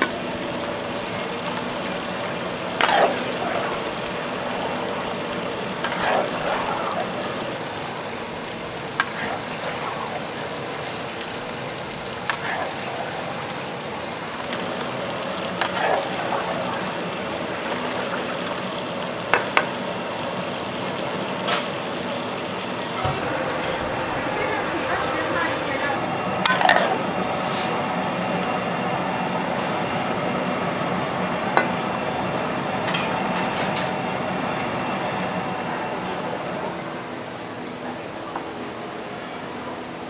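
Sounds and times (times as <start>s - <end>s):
broth bubbling: 0.0s - 32.8s
ladle stirring pot: 5.8s - 7.4s.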